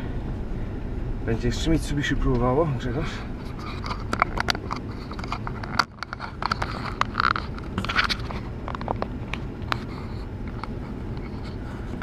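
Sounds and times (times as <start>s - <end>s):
car engine rumbling: 0.0s - 12.0s
sharp clicks and knocks: 3.5s - 11.4s.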